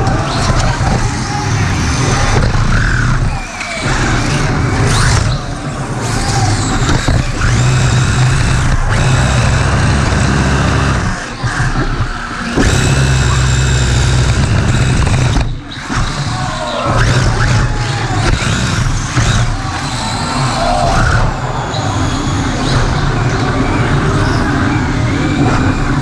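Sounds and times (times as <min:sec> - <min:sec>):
toy car wheels rumbling on concrete: 0:06.0 - 0:21.3
electric motor whine: 0:06.3 - 0:20.5.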